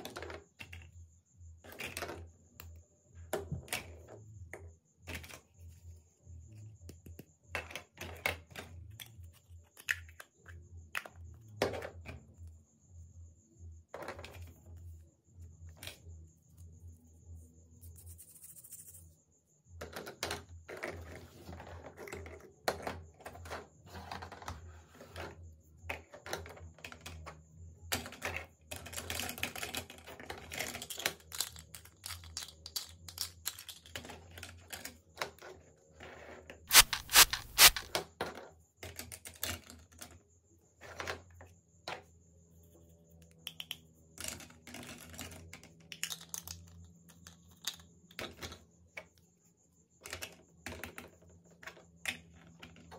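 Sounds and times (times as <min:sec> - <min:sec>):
plastic toy pieces clicking: 0:30.7 - 0:34.0, 0:36.7 - 0:37.9.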